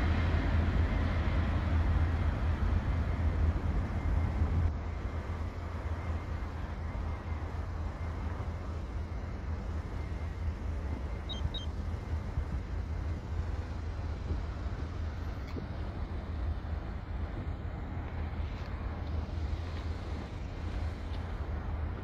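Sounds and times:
city road traffic rumble: 0:00.0 - 0:22.0
short high-pitched beeps: 0:11.3 - 0:11.7.

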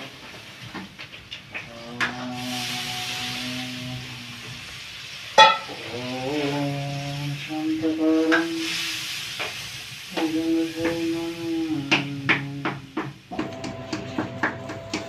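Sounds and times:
food sizzling in hot oil: 0:00.0 - 0:13.4
man humming low chant notes: 0:01.7 - 0:04.7, 0:05.6 - 0:08.8, 0:10.1 - 0:13.1
metal ladle clinking on pan: 0:05.4 - 0:05.7.

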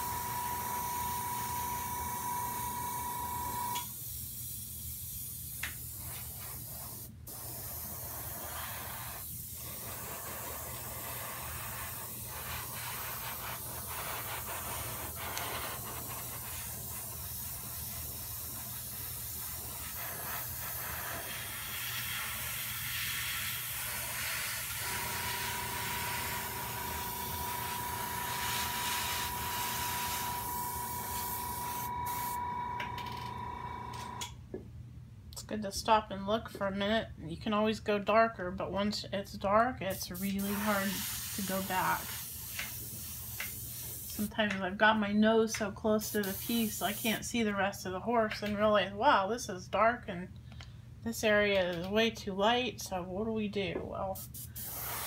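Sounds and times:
airbrush hissing: 0:00.0 - 0:32.6, 0:39.9 - 0:44.3, 0:46.1 - 0:47.2, 0:54.2 - 0:55.0.

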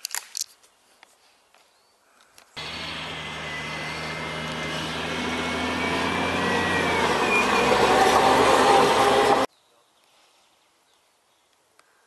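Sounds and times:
armoured vehicle driving past: 0:02.6 - 0:09.5
high whine: 0:02.6 - 0:09.5.

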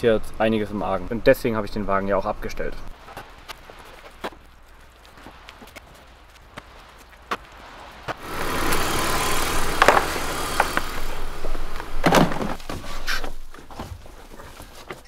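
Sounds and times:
rustling against car carpet: 0:03.0 - 0:15.0
car engine idling: 0:08.2 - 0:12.6.

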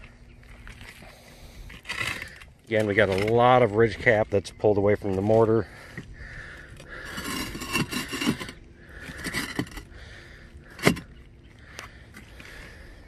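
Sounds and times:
roof tiles clacking underfoot: 0:06.7 - 0:12.8.

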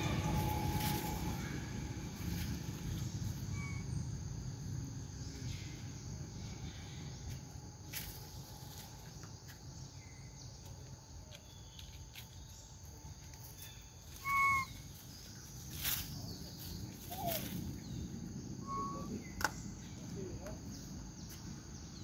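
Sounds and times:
rustles: 0:00.0 - 0:04.0, 0:10.5 - 0:21.6
high drone of insects: 0:00.0 - 0:22.0
loud flat whistle-like call: 0:14.2 - 0:14.8, 0:18.6 - 0:19.2.

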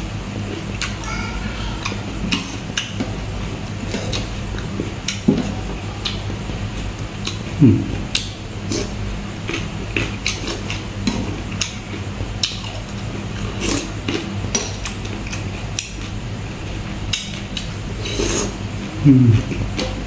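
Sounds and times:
low steady hum: 0:00.0 - 0:20.0
wet chewing and lip-smacking: 0:00.4 - 0:01.0, 0:01.8 - 0:05.3, 0:06.0 - 0:16.2, 0:17.1 - 0:17.8.

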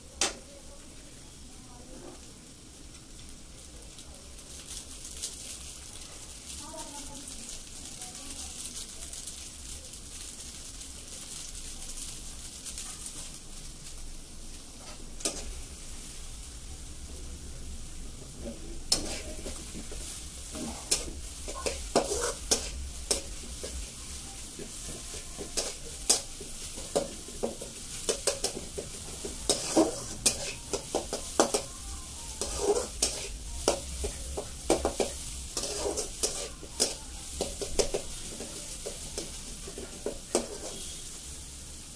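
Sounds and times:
food sizzling in a pan: 0:00.0 - 0:41.9
metal spatula scraping a pan: 0:14.8 - 0:15.7, 0:18.4 - 0:41.2.

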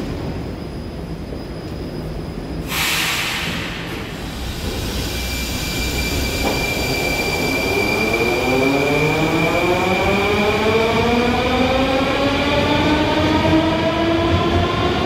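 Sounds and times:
low train rumble: 0:00.0 - 0:15.0
air hiss: 0:02.6 - 0:07.3.

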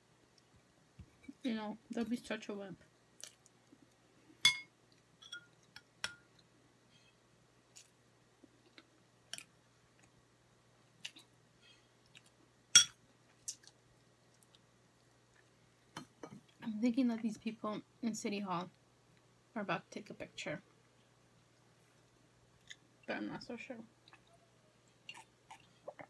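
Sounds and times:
chewing: 0:24.0 - 0:26.0.

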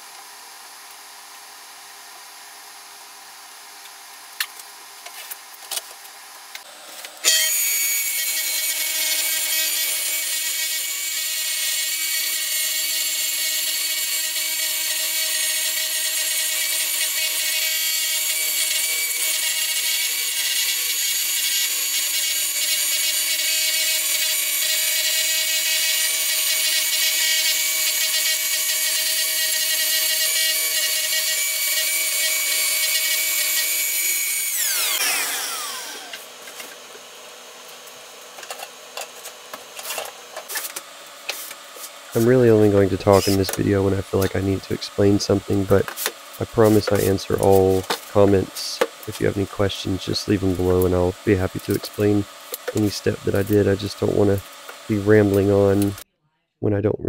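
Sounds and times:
circular saw cutting wood: 0:06.6 - 0:56.0
saw winding down: 0:07.2 - 0:37.2.

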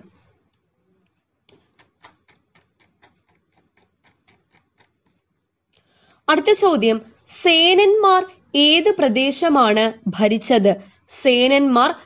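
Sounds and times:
mouse scroll wheel clicking: 0:01.5 - 0:05.2.

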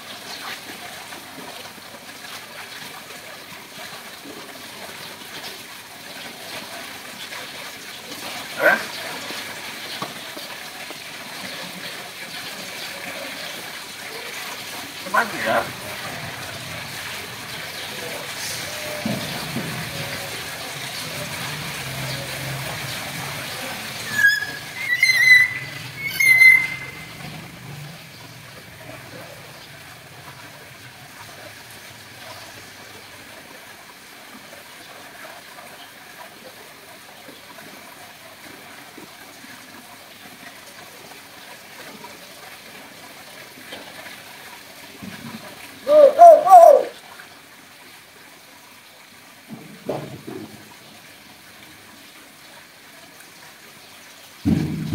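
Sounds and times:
myna whistled calls: 0:24.1 - 0:27.2, 0:45.9 - 0:46.9.

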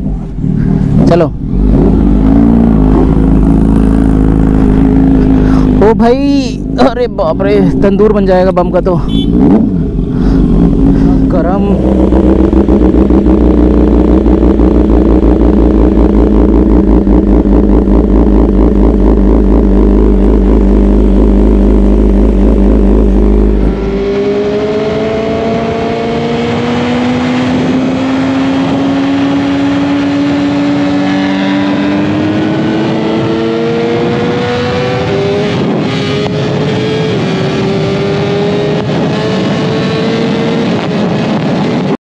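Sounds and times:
motorcycle engine accelerating: 0:00.0 - 0:42.0.

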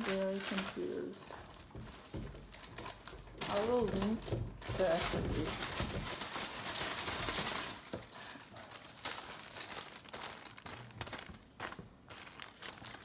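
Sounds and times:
baking paper crinkling: 0:00.0 - 0:13.0.

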